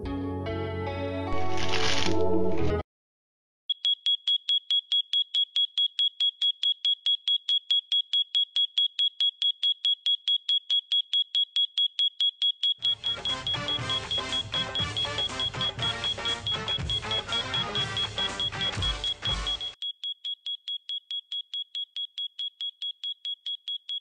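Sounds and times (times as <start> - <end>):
music: 0.0 - 2.8, 12.8 - 19.8
alarm clock beeping: 3.7 - 24.0.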